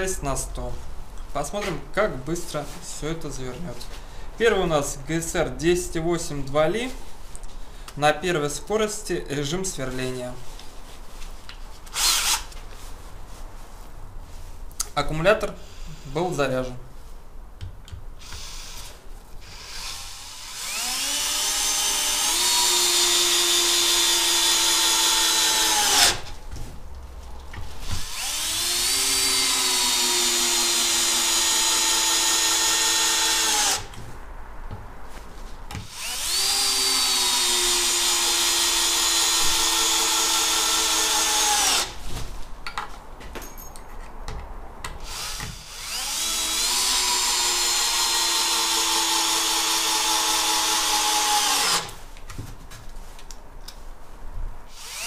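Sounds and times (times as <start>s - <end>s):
cordless drill driving screws: 11.9s - 12.6s, 18.2s - 26.2s, 27.9s - 34.0s, 35.8s - 42.0s, 45.0s - 52.0s, 54.7s - 55.0s.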